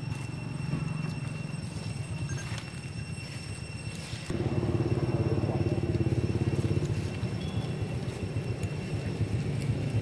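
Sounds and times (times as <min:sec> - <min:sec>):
small engine idling: 0:04.2 - 0:10.0.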